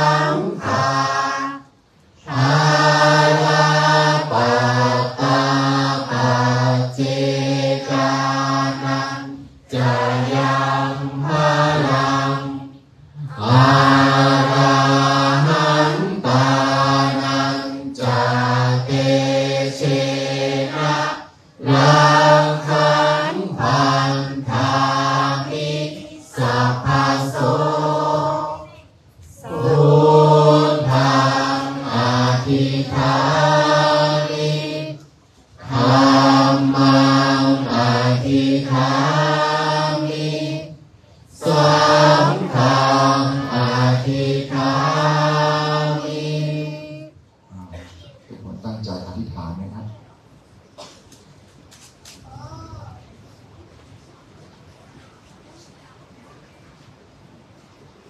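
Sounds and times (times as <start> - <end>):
men chanting in unison: 0.0 - 1.6, 2.2 - 12.6, 13.2 - 28.4, 29.4 - 34.9, 35.6 - 40.6, 41.4 - 46.9.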